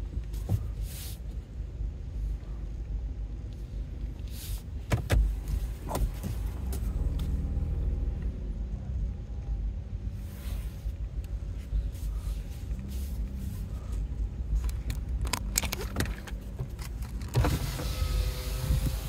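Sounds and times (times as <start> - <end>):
car rolling rumble: 0.0 - 19.0
sharp clicks and rattles: 14.6 - 17.5.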